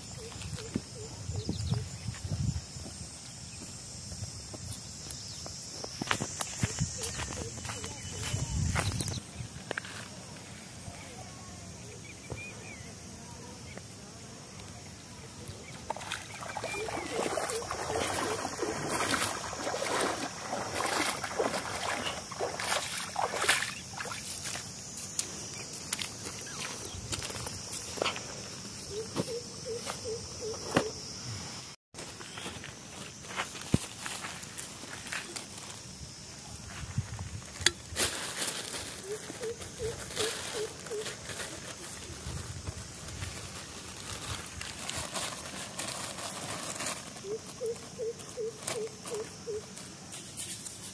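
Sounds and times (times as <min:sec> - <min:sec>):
footsteps wading through water: 0:15.8 - 0:24.7.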